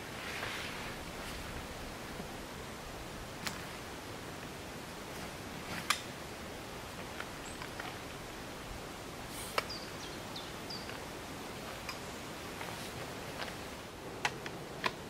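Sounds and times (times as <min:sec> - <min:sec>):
steady outdoor hiss: 0:00.0 - 0:15.0
tripod clicks and knocks: 0:14.2 - 0:15.0.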